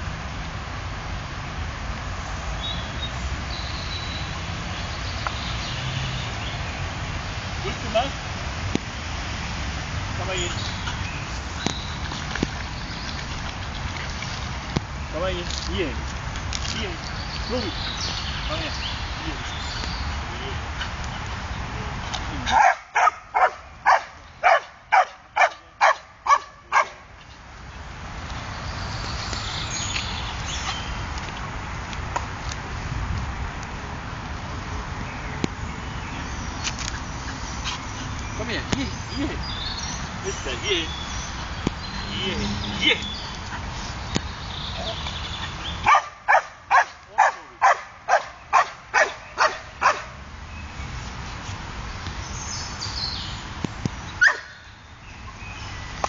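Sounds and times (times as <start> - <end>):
dog barking: 22.5 - 27.0, 45.8 - 50.2, 54.2 - 54.5.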